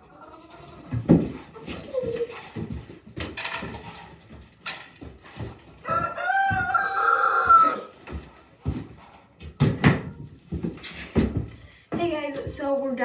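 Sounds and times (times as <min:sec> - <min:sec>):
rooster crowing: 0:05.8 - 0:07.9.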